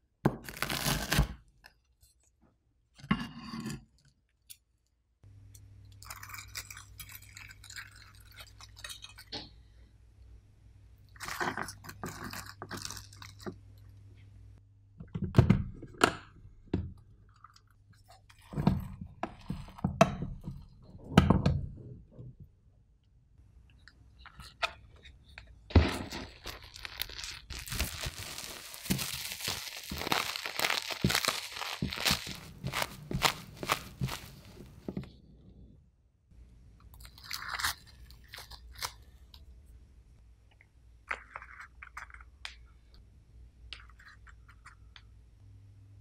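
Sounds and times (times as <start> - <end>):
plastic wrap crinkling: 0.4 - 1.3, 25.8 - 34.9
paddle scooping rice thumps: 27.6 - 35.0.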